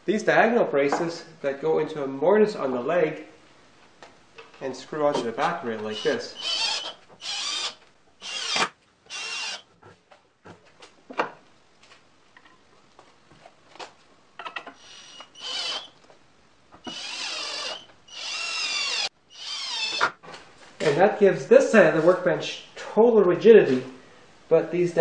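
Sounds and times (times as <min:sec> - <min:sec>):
cordless drill driving screws: 0:05.9 - 0:09.6, 0:14.8 - 0:16.0, 0:16.8 - 0:20.2.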